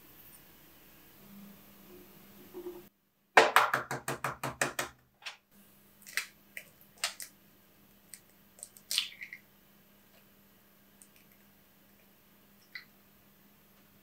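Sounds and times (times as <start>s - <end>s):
egg cracking on bowl rim: 8.1s - 9.4s.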